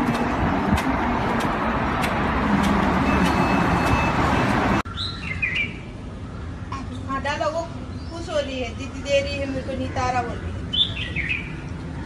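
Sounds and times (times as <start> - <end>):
bird chirping: 4.8 - 7.1, 10.3 - 11.6.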